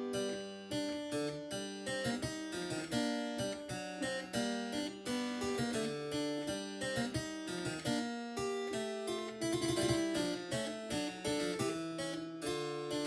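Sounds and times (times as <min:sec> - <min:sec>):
harpsichord playing: 0:09.1 - 0:11.6.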